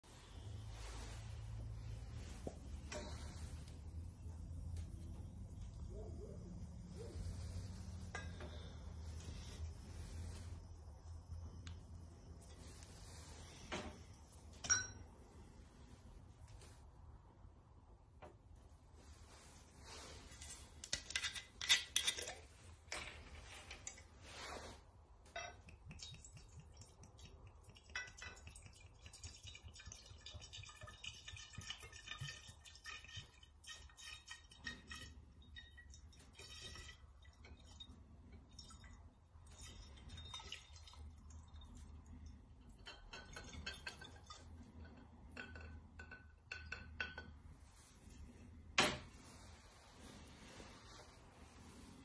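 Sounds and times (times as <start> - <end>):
bottle clinking on glass: 14.6 - 15.1
glass ringing: 14.6 - 15.2.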